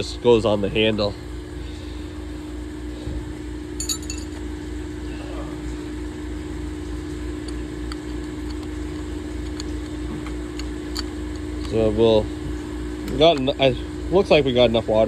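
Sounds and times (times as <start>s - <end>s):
steady machine hum: 0.0s - 15.0s
metallic clinks: 3.8s - 4.4s.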